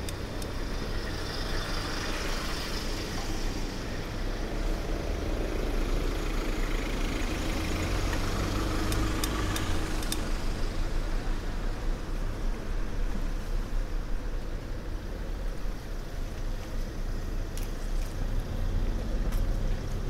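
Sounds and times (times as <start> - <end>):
traffic engine rumble: 0.0 - 20.0
sharp clicks: 8.8 - 10.3.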